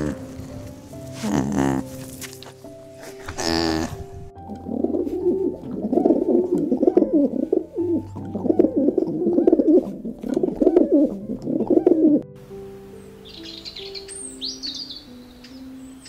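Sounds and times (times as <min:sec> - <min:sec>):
doves cooing: 0:00.0 - 0:02.2, 0:03.0 - 0:12.2
soft background music: 0:00.0 - 0:16.0.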